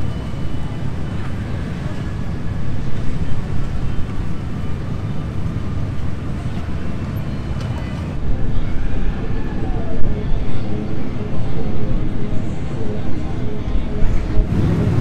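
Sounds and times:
voices in background: 0:00.0 - 0:15.0
motorcycle engines idling: 0:14.4 - 0:15.0.

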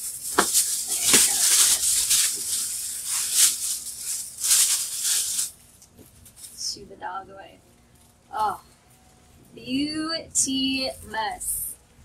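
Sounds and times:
crinkly wrapping rustling: 0:00.0 - 0:06.6.

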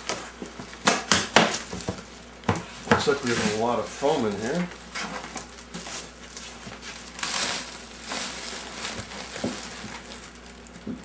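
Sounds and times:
plastic sheeting crinkling: 0:03.1 - 0:11.0.

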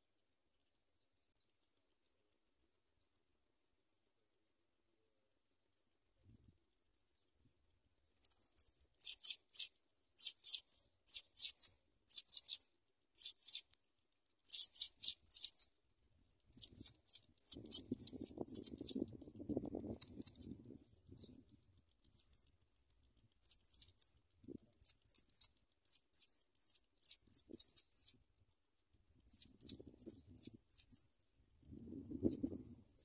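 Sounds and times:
nestlings chirping: 0:09.0 - 0:13.8, 0:14.4 - 0:15.7, 0:16.4 - 0:28.2, 0:29.2 - 0:31.1, 0:32.2 - 0:32.6.

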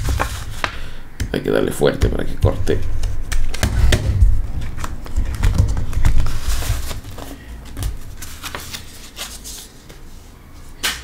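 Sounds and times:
vinyl scraping and rubbing: 0:02.6 - 0:10.4.

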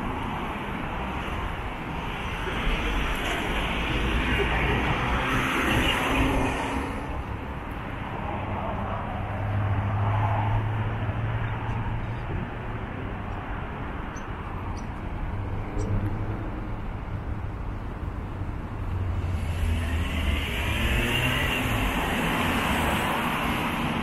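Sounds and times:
passing cars: 0:00.0 - 0:24.0.

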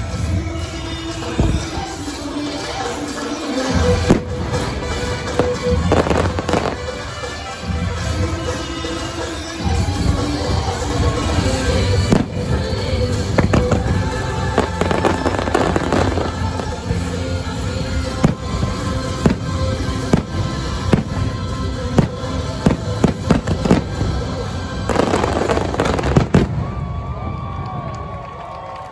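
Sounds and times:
music: 0:00.0 - 0:28.9
fireworks bangs and pops: 0:03.8 - 0:17.0, 0:18.0 - 0:27.0.

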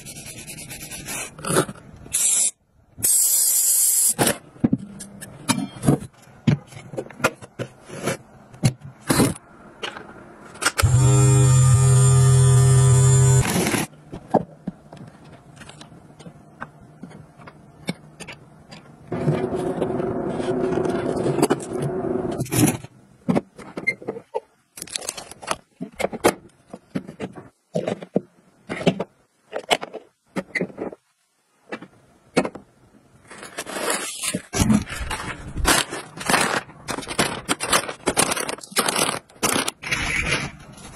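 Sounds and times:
steady hum: 0:10.8 - 0:13.9.

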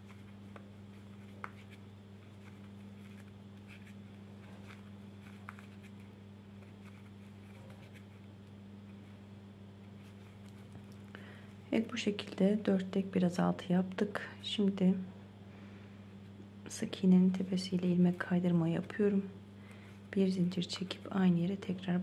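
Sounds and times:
crochet hook scratching and clicking: 0:00.1 - 0:01.8, 0:04.6 - 0:06.0.

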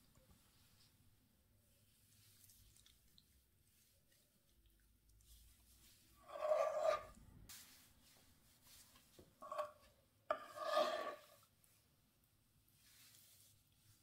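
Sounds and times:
wooden spoon scraping a pan: 0:05.9 - 0:07.2, 0:08.7 - 0:11.5.

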